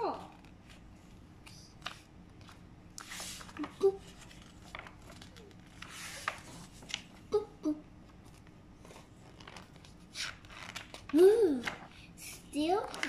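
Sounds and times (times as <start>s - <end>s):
book pages swishing: 0.3s - 7.2s, 8.2s - 13.0s
page taps and rustles: 1.8s - 7.2s, 8.1s - 11.9s.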